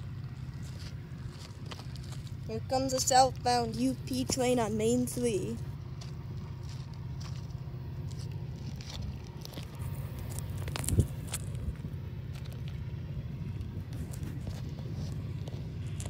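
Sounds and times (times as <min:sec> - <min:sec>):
wind buffeting microphone: 0:08.7 - 0:16.0.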